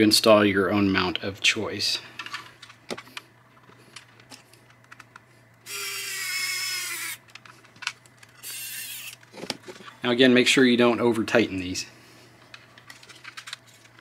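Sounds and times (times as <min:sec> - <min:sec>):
electric screwdriver whining: 0:05.7 - 0:07.2, 0:08.4 - 0:09.2.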